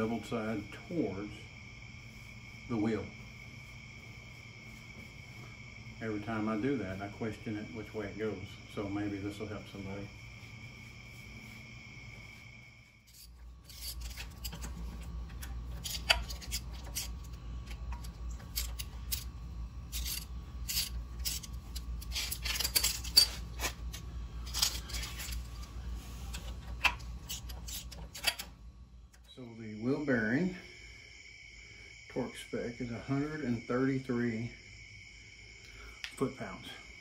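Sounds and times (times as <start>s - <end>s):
low steady hum: 0.0s - 37.0s
steady high whine: 0.0s - 37.0s
metallic clicks and rattles of tools: 13.1s - 19.3s, 19.9s - 25.6s, 26.3s - 28.5s.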